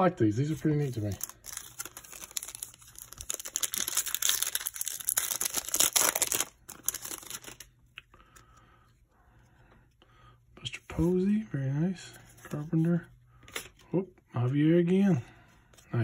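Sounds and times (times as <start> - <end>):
cards rustling: 0.4 - 8.6, 12.1 - 13.9
foil wrapper crinkling and tearing: 0.9 - 7.7.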